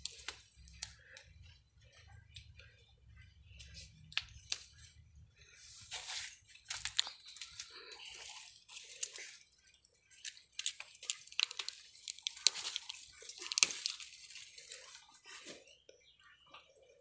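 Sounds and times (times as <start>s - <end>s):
bean pods snapping: 0.0s - 1.6s, 3.5s - 4.9s, 6.6s - 15.2s
leaves rustling and crackling: 5.6s - 15.7s.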